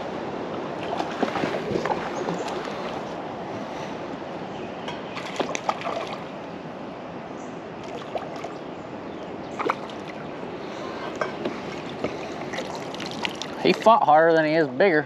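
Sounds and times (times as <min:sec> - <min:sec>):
fish thrashing and splashing: 0:00.8 - 0:03.1, 0:05.2 - 0:06.3, 0:09.6 - 0:10.2, 0:11.5 - 0:13.9
water washing: 0:09.6 - 0:14.1.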